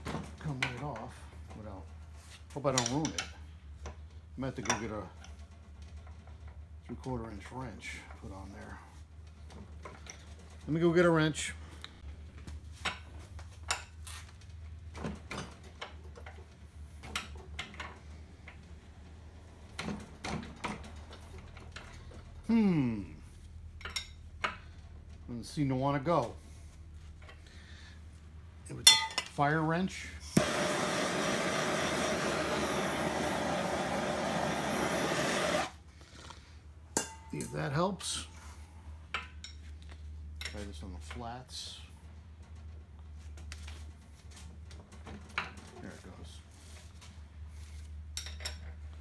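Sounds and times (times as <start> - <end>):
torch ignition click: 30.4 - 35.7
gas torch hissing: 30.4 - 35.8.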